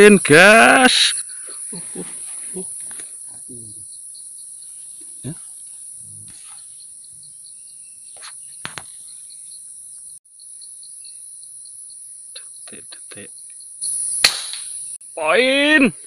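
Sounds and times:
shrill insect drone: 0.0 - 16.0
air rifle shot crack: 14.2 - 14.7.

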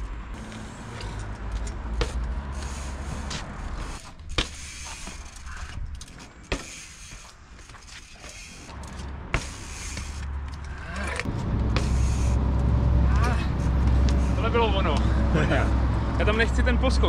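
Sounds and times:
low rumble: 10.6 - 17.0.

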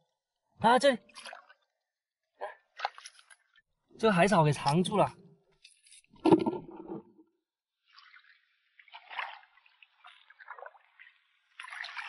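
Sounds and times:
water trickling and dripping: 7.9 - 12.0.

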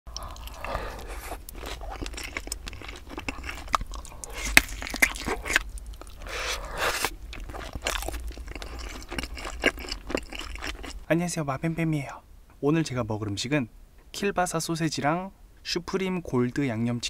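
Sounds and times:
crunching and chewing food: 0.1 - 11.1.

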